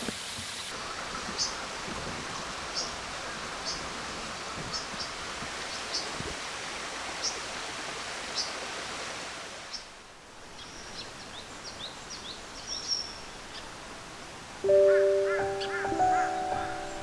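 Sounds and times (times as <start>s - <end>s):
steady rushing hiss: 0.0s - 11.3s
bird chirps: 14.7s - 17.0s.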